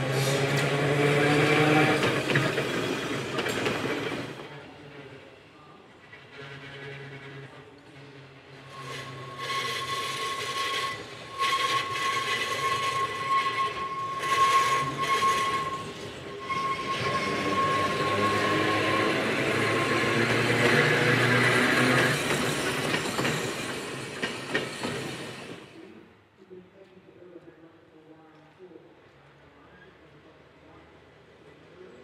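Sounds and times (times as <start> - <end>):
tram running past: 0.0 - 25.8
wheel squeal on curve: 8.6 - 23.5.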